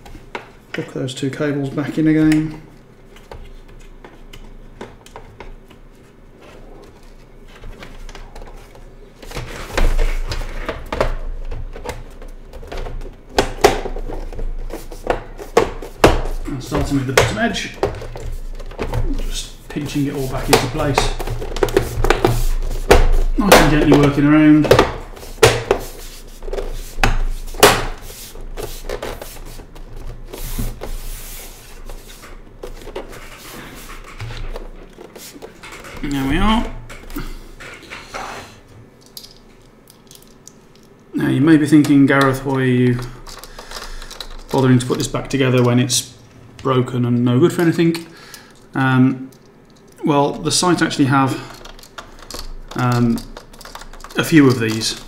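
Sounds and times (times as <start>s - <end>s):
hands scraping along plastic: 5.9s - 36.5s, 50.8s - 55.0s
plastic clips clicking and snapping: 51.5s - 55.0s.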